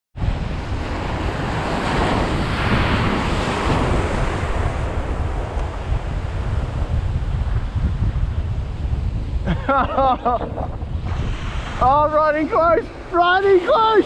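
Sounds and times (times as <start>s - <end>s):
surf breaking on shore: 0.2s - 14.0s
wind buffeting microphone: 0.2s - 14.0s.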